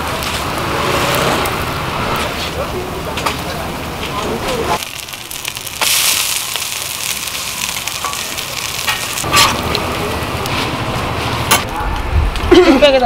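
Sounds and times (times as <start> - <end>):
pancake sizzling in oil: 0.0 - 10.6
metal spatula scraping: 8.0 - 9.8.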